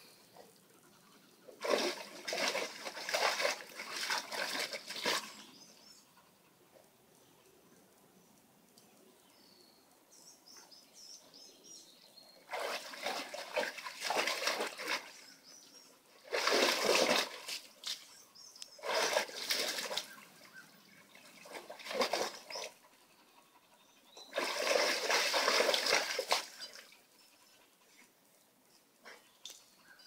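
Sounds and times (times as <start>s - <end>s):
dog splashing in water: 1.6s - 5.4s, 12.5s - 15.2s, 16.2s - 18.0s, 18.8s - 20.2s, 21.4s - 22.8s, 24.3s - 27.0s.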